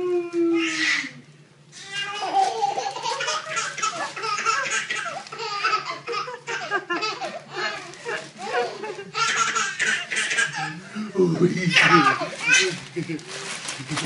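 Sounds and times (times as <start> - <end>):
baby laughing: 1.8 - 10.8, 11.7 - 13.4.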